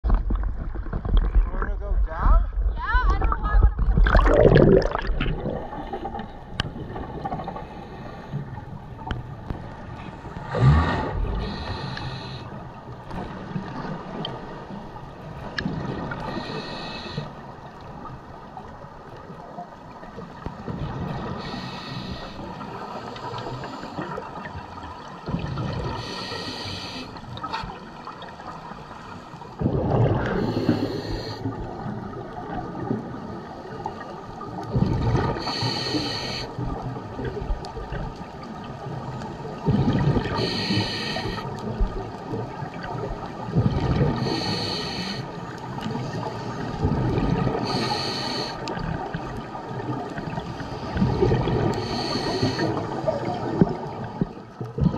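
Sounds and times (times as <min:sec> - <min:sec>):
low water rumble: 0:00.0 - 0:54.9
exhale bubbling rush: 0:03.9 - 0:06.3, 0:29.6 - 0:31.6
regulator breathing hiss: 0:11.4 - 0:12.6, 0:16.3 - 0:17.4, 0:21.4 - 0:24.0, 0:26.0 - 0:27.2, 0:30.4 - 0:31.5, 0:35.4 - 0:36.6, 0:40.3 - 0:41.5, 0:44.2 - 0:45.4, 0:47.6 - 0:48.8, 0:51.7 - 0:52.8.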